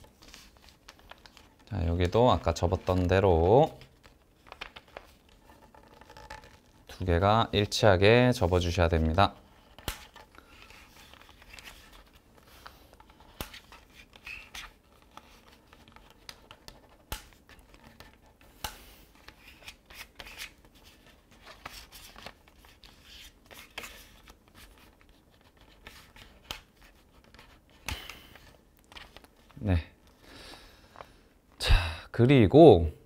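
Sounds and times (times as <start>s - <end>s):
paper rustling and scraping: 8.3s - 18.4s, 19.1s - 29.6s.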